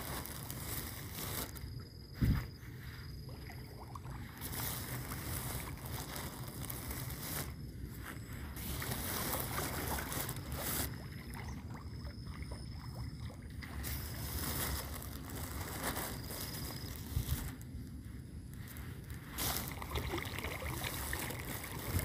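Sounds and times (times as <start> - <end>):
rustling handling noise: 0.0 - 3.2, 4.2 - 11.1, 13.7 - 22.0
wind rumbling on microphone: 0.0 - 12.1.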